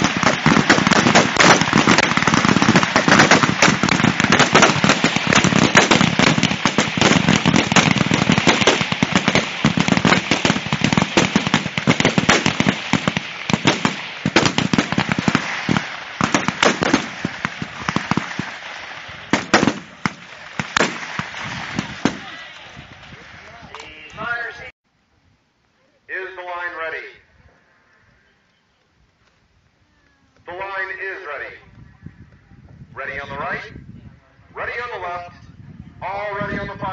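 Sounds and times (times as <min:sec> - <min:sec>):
rifles firing: 0:00.0 - 0:22.5.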